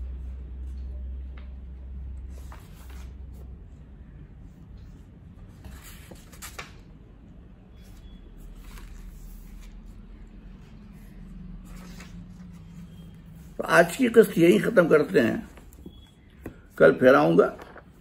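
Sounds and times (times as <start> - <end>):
steady low hum: 7.0 - 16.8.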